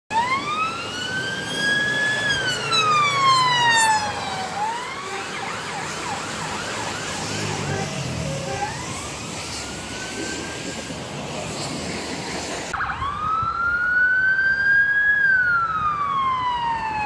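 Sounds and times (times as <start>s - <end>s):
police siren wailing: 0.1s - 10.8s, 12.7s - 17.0s
road noise: 0.1s - 17.0s
car engine: 0.4s - 12.8s.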